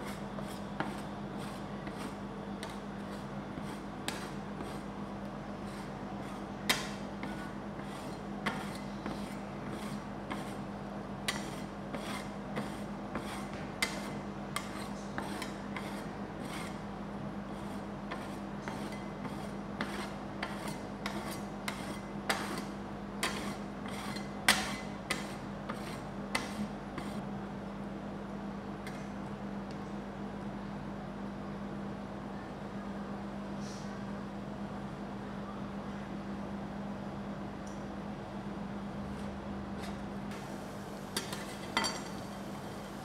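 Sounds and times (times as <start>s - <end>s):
steady low hum: 0.0s - 43.0s
metal spatulas scraping: 5.6s - 10.6s, 11.3s - 16.8s, 17.6s - 27.2s, 39.1s - 40.1s.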